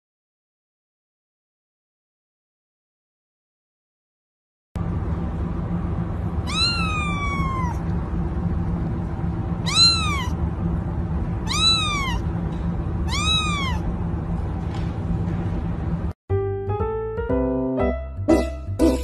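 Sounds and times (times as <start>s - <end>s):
low background hum: 4.8s - 16.2s
kitten meowing: 6.4s - 7.9s, 9.6s - 10.4s, 11.4s - 12.2s, 13.0s - 13.9s.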